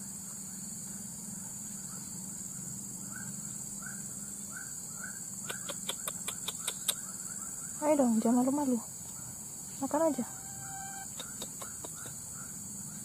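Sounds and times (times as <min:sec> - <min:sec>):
high insect buzzing: 0:08.0 - 0:12.2
short rising chirp call: 0:10.0 - 0:11.8.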